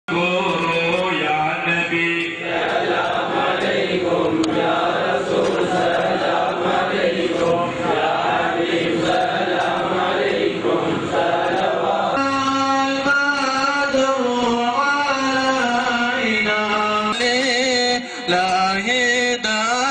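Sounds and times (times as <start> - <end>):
many voices chanting: 2.3 - 16.5.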